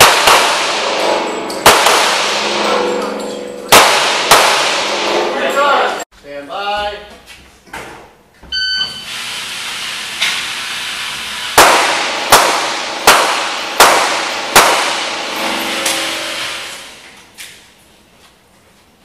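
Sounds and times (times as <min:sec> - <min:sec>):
handgun shots echoing indoors: 0:00.0 - 0:05.3, 0:11.6 - 0:16.9.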